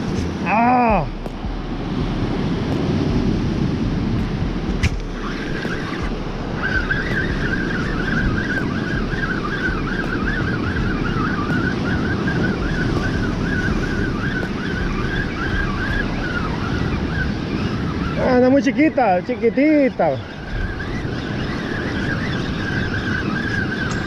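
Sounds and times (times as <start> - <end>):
surf on rocks: 0.0 - 24.0
fishing reel gears whining: 5.0 - 24.0.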